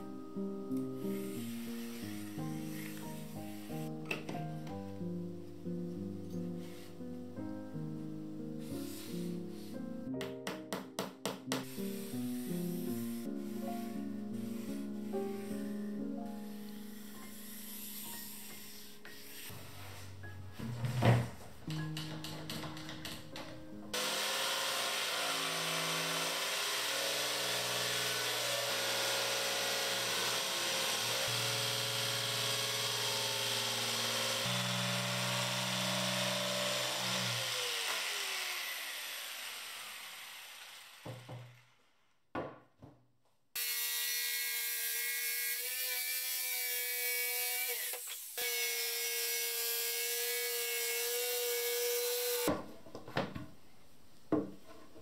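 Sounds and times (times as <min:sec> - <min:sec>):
jigsaw cutting board: 0:23.9 - 0:42.1, 0:43.6 - 0:52.6.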